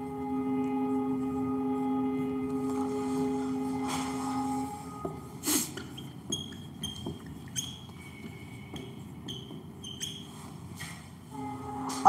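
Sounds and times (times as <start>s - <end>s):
whiteboard marker squeaking: 5.4s - 11.0s.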